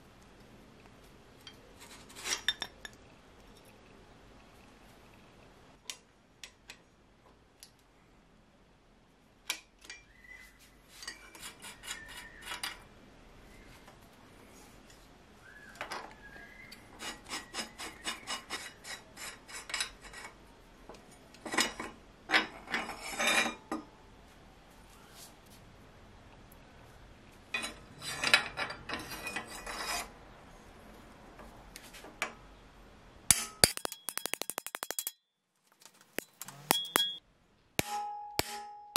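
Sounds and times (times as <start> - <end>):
hand tools clicking and scraping: 1.4 - 3.7, 10.9 - 12.9, 16.7 - 20.4, 21.3 - 23.9, 27.5 - 30.1, 33.3 - 37.2.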